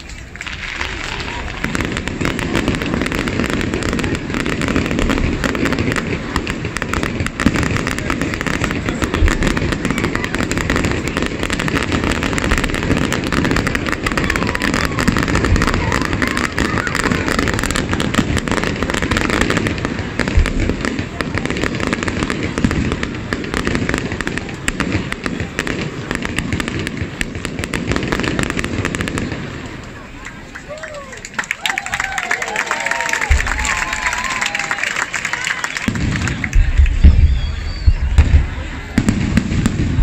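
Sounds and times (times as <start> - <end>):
fireworks bursts and crackle: 0.0 - 40.0.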